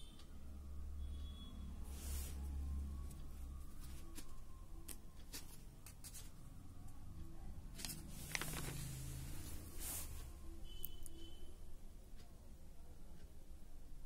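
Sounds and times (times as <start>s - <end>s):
paper pages rustling: 7.7s - 10.3s.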